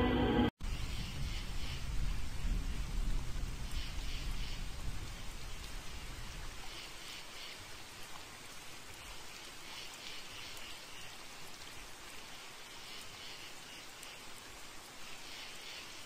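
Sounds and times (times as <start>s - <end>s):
running water hiss: 0.6s - 16.0s.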